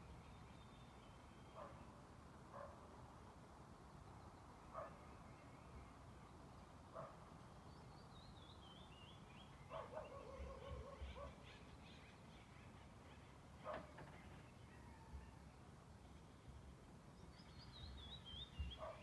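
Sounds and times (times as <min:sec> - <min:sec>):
distant dog barking: 0:01.6 - 0:01.8, 0:02.5 - 0:02.9, 0:04.7 - 0:05.0, 0:06.9 - 0:07.2, 0:09.7 - 0:11.5, 0:13.6 - 0:14.1, 0:18.7 - 0:19.0
bird singing: 0:03.9 - 0:15.4, 0:17.2 - 0:19.0.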